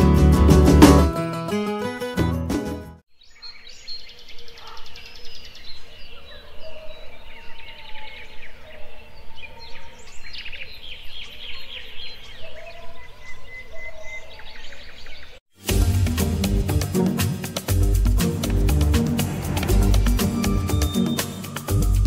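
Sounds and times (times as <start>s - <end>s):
birds chirping and singing: 3.2s - 15.4s, 19.8s - 22.0s
steady low rumble: 17.7s - 21.0s.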